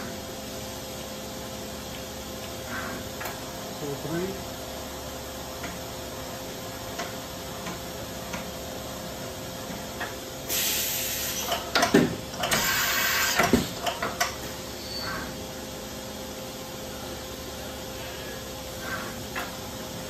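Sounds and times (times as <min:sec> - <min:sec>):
machining center humming: 0:00.0 - 0:20.0
compressed air hissing: 0:10.5 - 0:11.6, 0:12.5 - 0:13.6.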